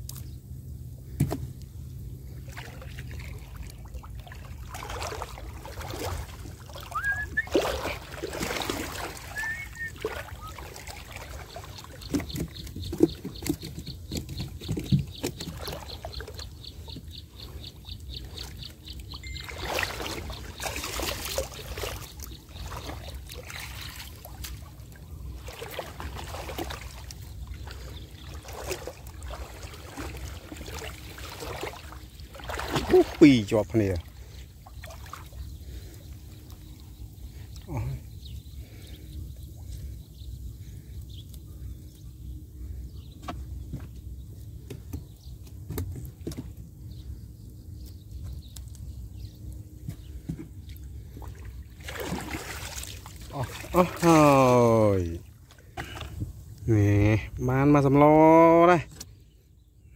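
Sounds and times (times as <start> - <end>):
water sloshing and splashing: 2.2 - 40.0, 49.4 - 57.2.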